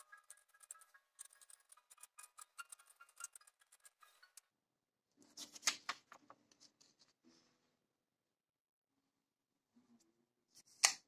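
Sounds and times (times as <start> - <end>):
marker squeaking on paper: 0.0 - 4.4.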